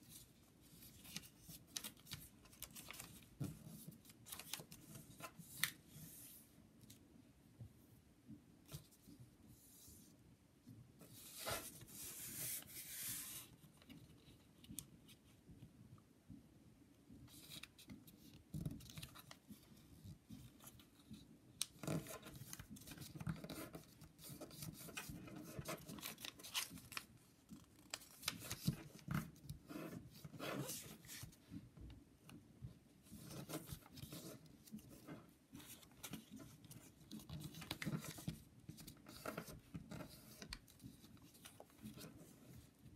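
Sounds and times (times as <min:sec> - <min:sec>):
paper rustling and crinkling: 0:00.1 - 0:06.2, 0:21.8 - 0:31.5, 0:33.1 - 0:42.7.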